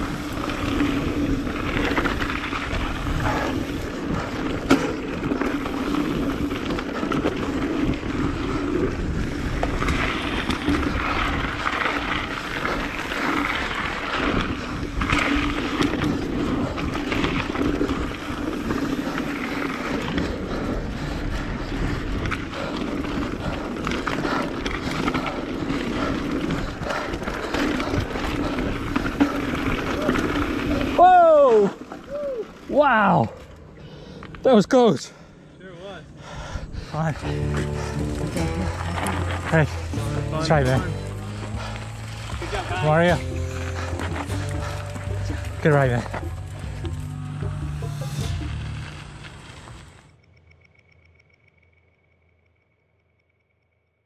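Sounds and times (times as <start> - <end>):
bike rattling and knocking: 0.0 - 31.0
tyres rolling over dirt: 0.0 - 33.7, 37.0 - 50.1.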